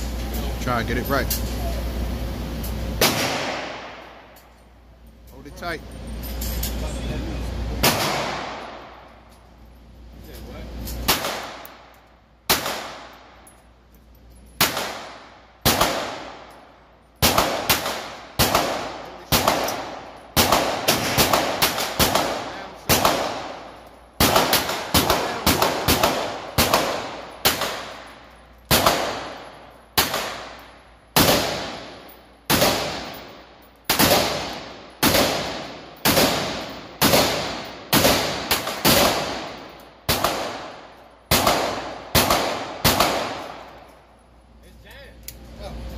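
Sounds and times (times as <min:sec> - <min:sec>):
pistol shots indoors: 0:03.0 - 0:04.5, 0:07.8 - 0:09.2, 0:10.8 - 0:13.6, 0:14.5 - 0:44.0.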